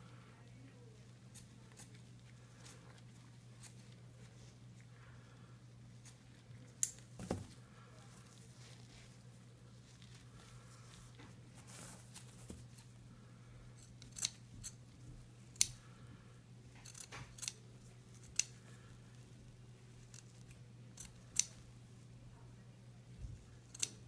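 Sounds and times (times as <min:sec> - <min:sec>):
steady low hum: 0:00.0 - 0:24.0
scissors snipping padding: 0:23.7 - 0:24.0.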